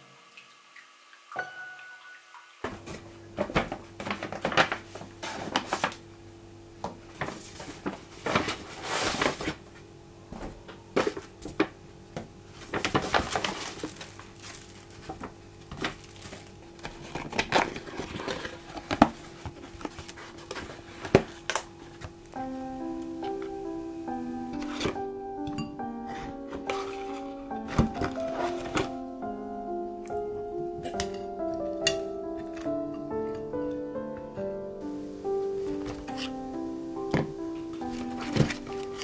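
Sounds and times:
paper bag rustling: 3.1 - 6.1, 7.1 - 9.7, 12.5 - 25.2, 25.9 - 29.2, 34.8 - 39.0.

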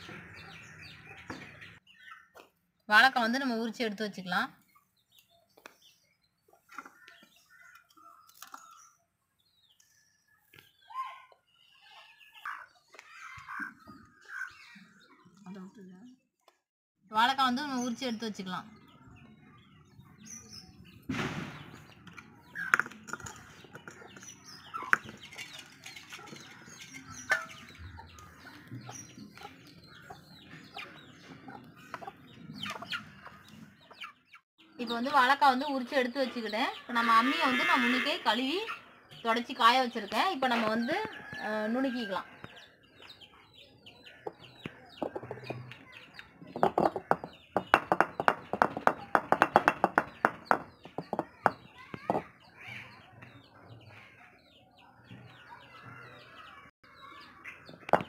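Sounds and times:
chickens clucking: 22.2 - 34.4, 42.2 - 56.2
stone roller tapping on grinding slab: 46.6 - 52.2.

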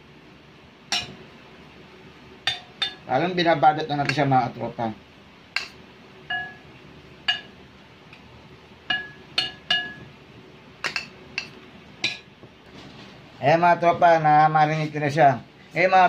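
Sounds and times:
metal spoon clinking ceramic bowl: 5.6 - 6.7, 8.9 - 10.1.

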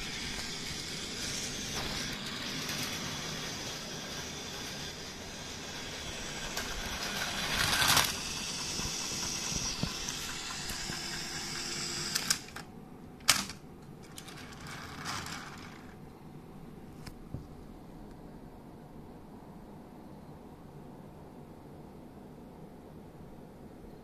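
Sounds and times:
toy train motor whir: 0.0 - 12.7, 13.3 - 16.0.

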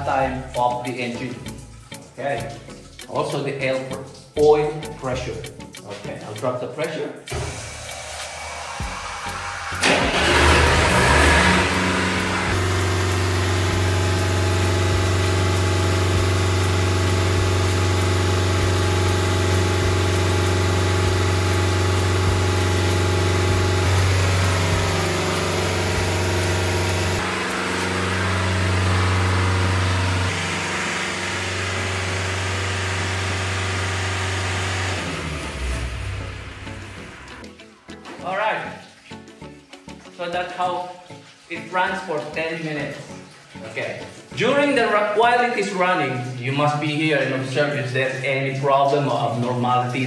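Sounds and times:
diesel pump engine running: 7.3 - 37.4.

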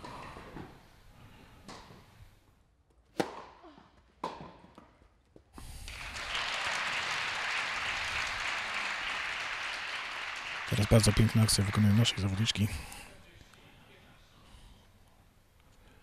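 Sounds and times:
tennis ball hits echoing: 3.1 - 3.6
crowd applauding: 5.8 - 12.7.

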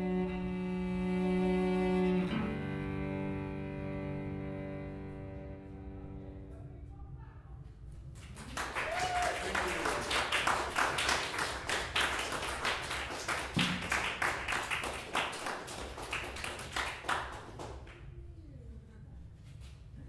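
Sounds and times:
faint quiet talk: 6.0 - 8.0, 17.9 - 20.0
audience applauding: 8.2 - 18.0.

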